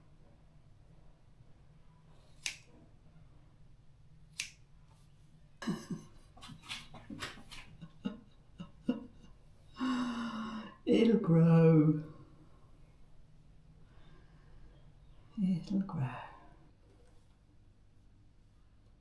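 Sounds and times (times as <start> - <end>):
scissors snipping hair: 2.3 - 2.7, 4.3 - 4.7.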